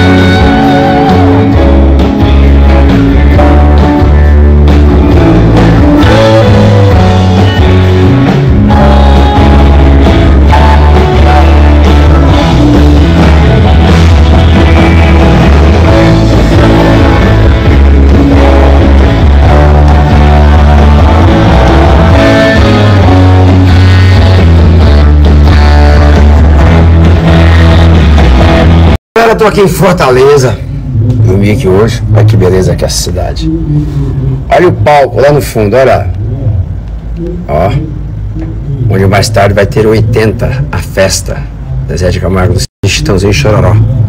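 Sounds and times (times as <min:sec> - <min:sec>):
loud rock band music: 0:00.0 - 0:29.0.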